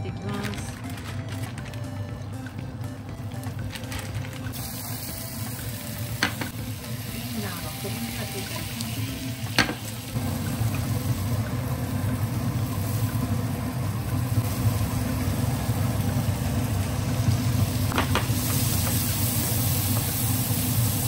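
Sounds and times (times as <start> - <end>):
food sizzling in butter: 4.5 - 21.0.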